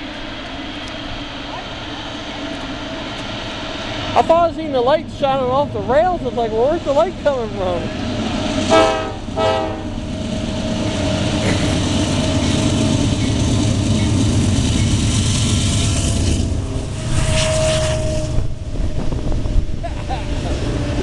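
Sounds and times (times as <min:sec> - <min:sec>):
locomotive engine running: 0:00.0 - 0:21.0
steady tone: 0:00.3 - 0:21.0
locomotive horn blasts: 0:08.7 - 0:10.0, 0:15.8 - 0:19.1.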